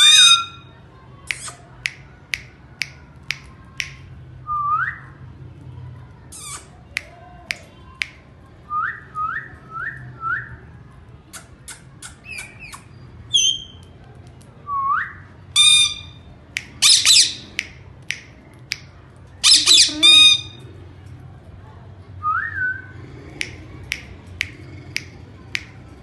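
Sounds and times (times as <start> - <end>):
parrot squawks: 0.0 - 0.7, 15.6 - 16.2, 16.8 - 17.6, 19.4 - 20.6
parrot clicks: 1.3 - 4.0
parrot rising whistles: 19.4 - 20.6.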